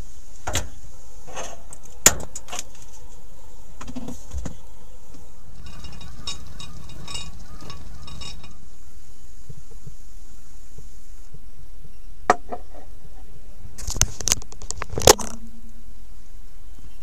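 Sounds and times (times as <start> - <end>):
steady low hum: 0.0 - 13.8
light metallic rattling: 5.2 - 8.8
cookware clicks and knocks: 5.6 - 8.6.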